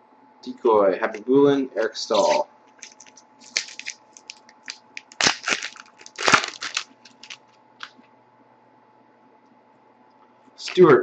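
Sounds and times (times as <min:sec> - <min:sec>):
foil wrapper tearing and crinkling: 0:02.1 - 0:07.9.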